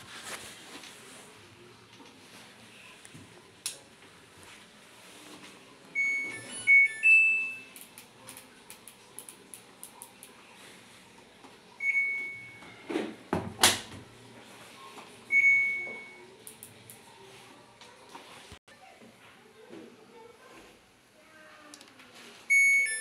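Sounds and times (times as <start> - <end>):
multi-tone chime: 6.0 - 7.8, 22.5 - 23.0.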